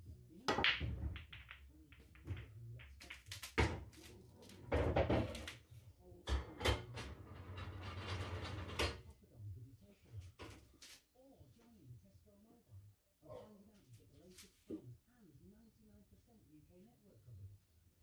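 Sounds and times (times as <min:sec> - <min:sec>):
pool balls clacking: 0:00.4 - 0:04.1, 0:04.8 - 0:05.5
cue ball smashing into balls: 0:00.5 - 0:04.0.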